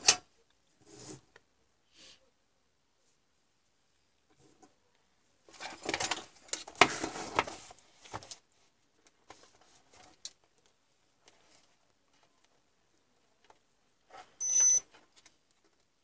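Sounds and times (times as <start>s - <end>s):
paper rustling: 5.5s - 12.6s.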